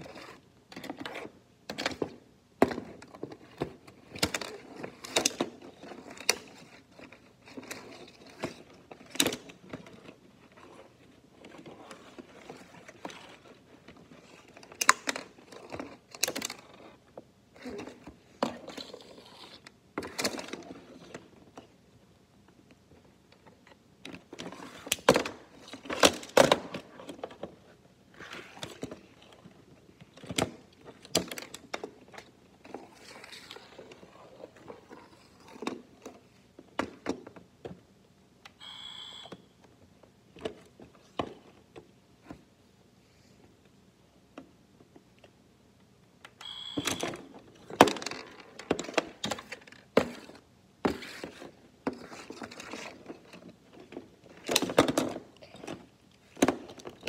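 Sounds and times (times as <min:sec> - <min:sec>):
short high beep: 0:38.6 - 0:39.5, 0:46.4 - 0:47.1.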